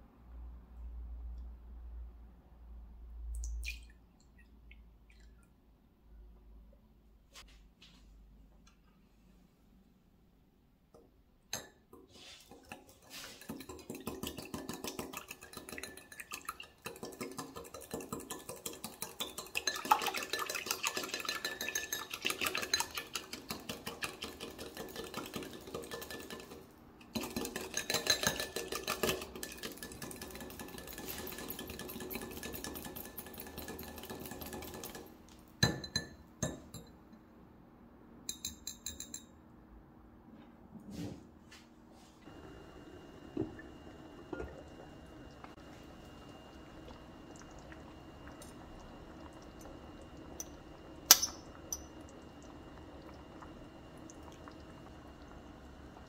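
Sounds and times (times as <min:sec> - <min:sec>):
whisk clicking against glass bowl: 0:13.4 - 0:26.6, 0:27.2 - 0:35.0.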